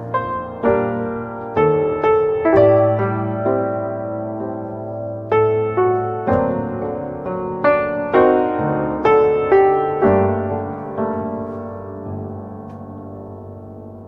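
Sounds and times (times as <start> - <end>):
slow piano notes and chords: 0.0 - 14.0.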